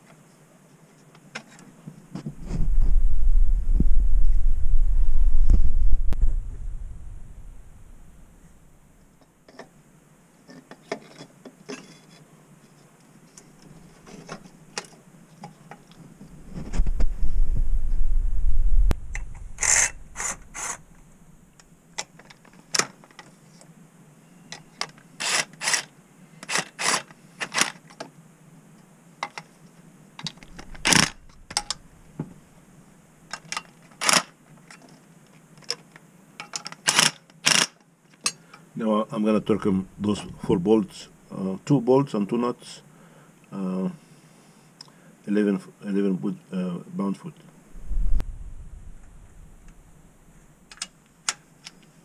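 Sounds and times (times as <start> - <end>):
low rumbling: 2.3 - 8.9, 16.3 - 21.5, 30.4 - 32.2, 39.4 - 41.3, 47.6 - 50.6.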